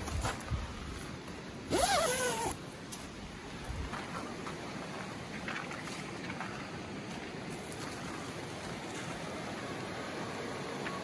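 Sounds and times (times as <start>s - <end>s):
creek water rushing: 2.5s - 11.0s.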